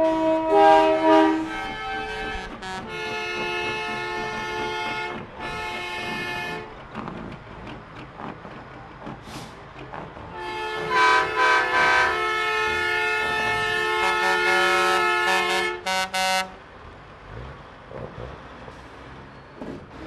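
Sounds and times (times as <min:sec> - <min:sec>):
truck air horn blasting: 0:00.0 - 0:06.7, 0:10.3 - 0:16.6.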